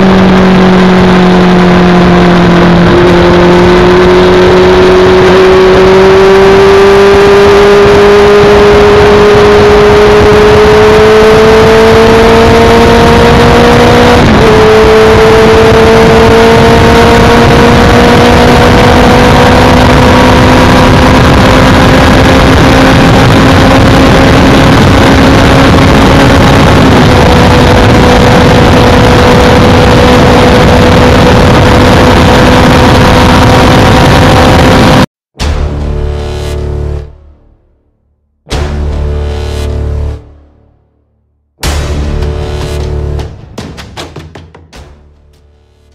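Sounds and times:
wind and road noise: 0:00.0 - 0:35.1.

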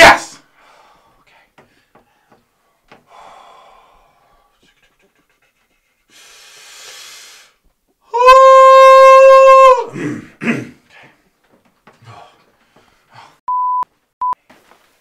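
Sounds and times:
man breathing in loudly: 0:00.5 - 0:02.4, 0:03.0 - 0:04.6, 0:06.0 - 0:07.6.

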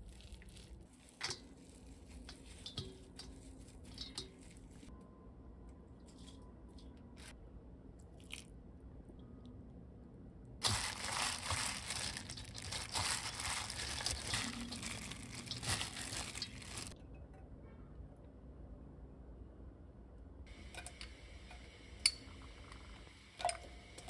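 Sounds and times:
greens squishing: 0:00.0 - 0:04.9, 0:10.6 - 0:17.0
plastic glove crinkling: 0:00.0 - 0:04.9, 0:10.6 - 0:17.0.

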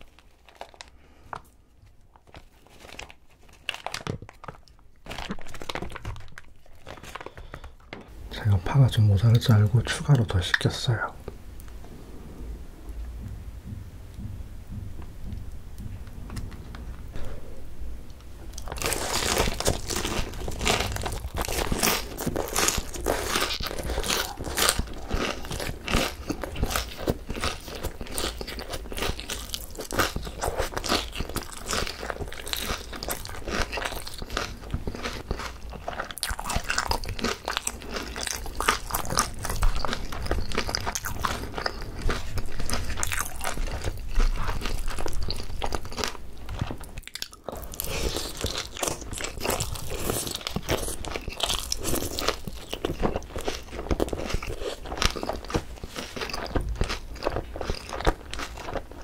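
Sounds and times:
crunching and chewing fried chicken: 0:00.0 - 0:11.1, 0:18.5 - 0:59.0.

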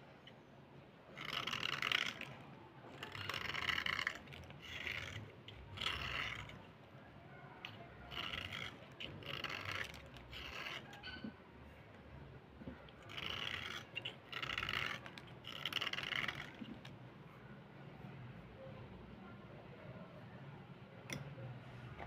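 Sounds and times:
blade scraping slate pencil: 0:01.1 - 0:06.8, 0:07.6 - 0:11.4, 0:12.6 - 0:17.0.

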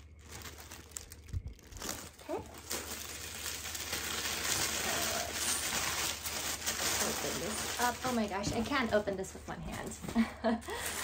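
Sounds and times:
tissue paper rustling and crinkling: 0:00.0 - 0:10.2.

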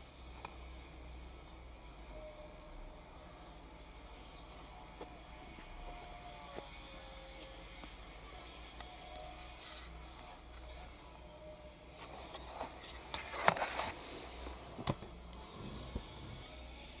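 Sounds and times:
rubbing and scraping plastic: 0:11.9 - 0:16.4.

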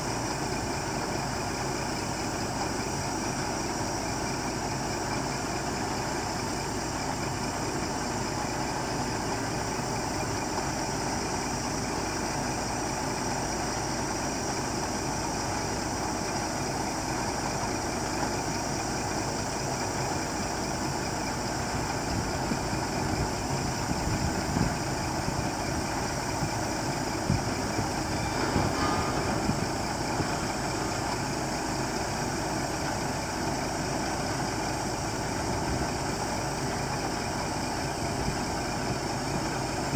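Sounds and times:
diesel truck engine running: 0:00.0 - 0:39.9
hydraulic arm working: 0:00.0 - 0:39.9
loud knocks: 0:28.0 - 0:31.2.

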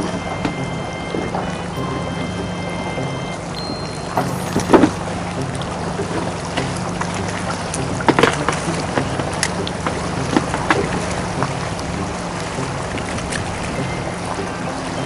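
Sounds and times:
boat engine idling: 0:00.0 - 0:15.0
water slapping against hull: 0:04.8 - 0:15.0.

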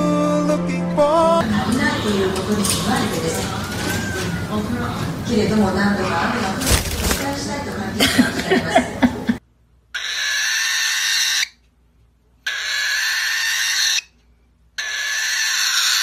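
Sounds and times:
cockatiel rasping calls: 0:03.3 - 0:04.6, 0:10.0 - 0:11.6, 0:12.4 - 0:14.1, 0:14.8 - 0:16.0.

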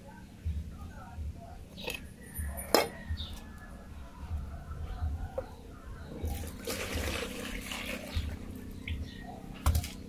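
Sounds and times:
coconut water pouring into bowl: 0:06.4 - 0:08.3.

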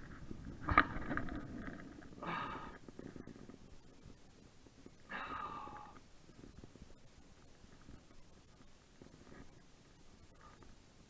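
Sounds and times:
man breathing hard: 0:02.2 - 0:02.8, 0:05.1 - 0:06.0.

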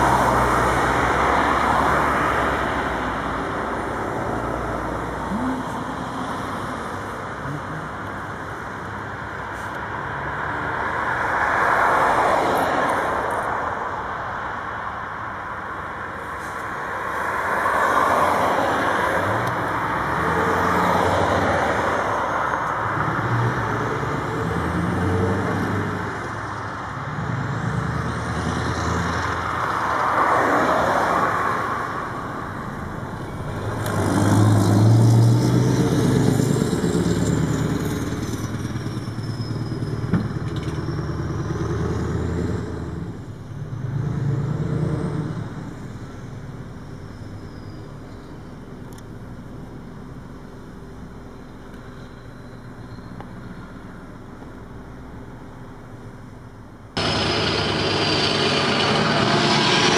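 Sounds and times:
diesel truck engine shifting gears: 0:57.0 - 0:59.9
passing car tyre noise: 0:57.0 - 0:59.9.

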